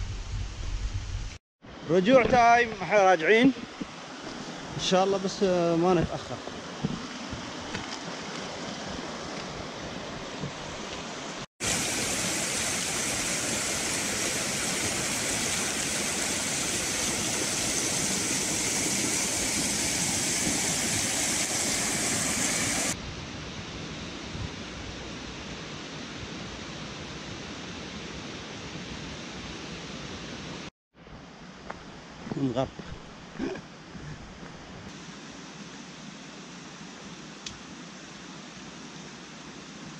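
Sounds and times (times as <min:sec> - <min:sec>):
mountain stream rushing: 0:01.7 - 0:23.0.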